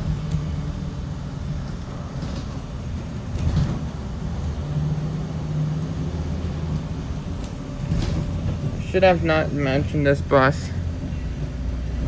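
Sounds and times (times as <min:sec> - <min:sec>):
bus engine drone: 0:00.0 - 0:12.0
road noise: 0:00.0 - 0:12.0
loud clatter: 0:02.1 - 0:04.0.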